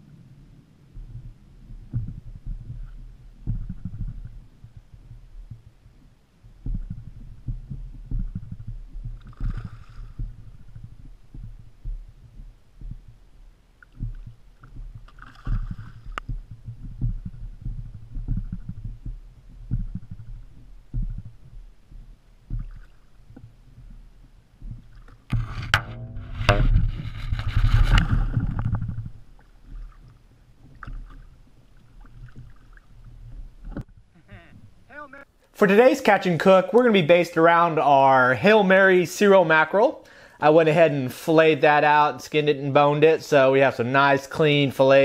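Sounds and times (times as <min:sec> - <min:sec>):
water lapping against kayak hull: 0:00.4 - 0:34.9
fish splashing: 0:06.5 - 0:25.4, 0:26.7 - 0:34.0.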